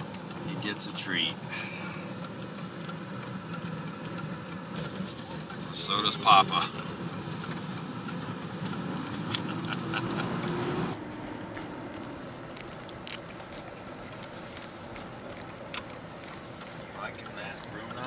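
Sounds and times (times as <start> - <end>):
car idling hum: 0.0 - 18.0
dog licking wet smacks: 11.4 - 18.0.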